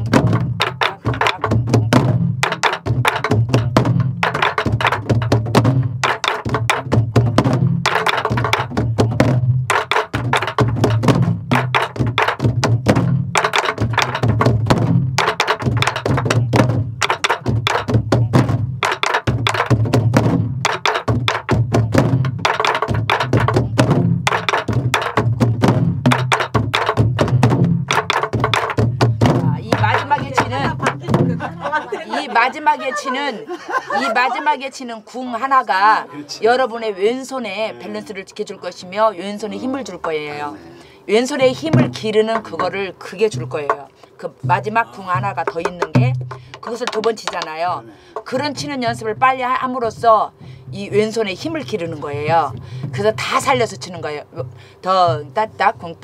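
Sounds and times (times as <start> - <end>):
stick clacks on wooden drum shell: 6.0 - 14.6, 45.3 - 48.4.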